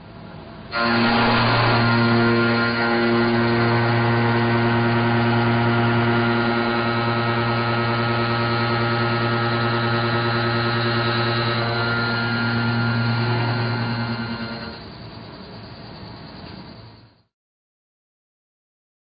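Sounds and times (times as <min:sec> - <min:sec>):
milling cutter machining hum: 0:00.1 - 0:17.2.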